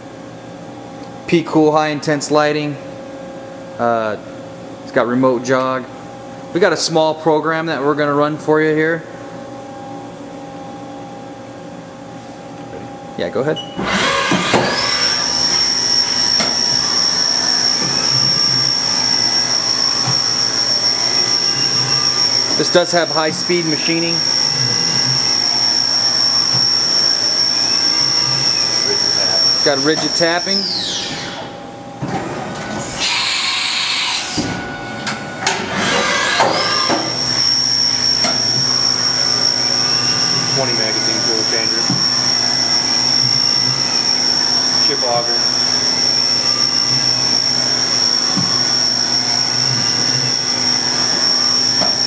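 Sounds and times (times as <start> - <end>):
spindle high whine: 0.0 - 52.0
metal cutting noise: 13.8 - 31.5, 32.8 - 52.0.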